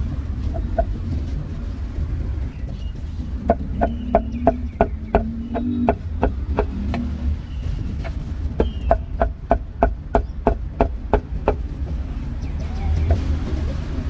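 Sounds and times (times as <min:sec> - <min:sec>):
steady low rumble: 0:00.0 - 0:14.0
cleaver chopping meat: 0:03.5 - 0:07.0.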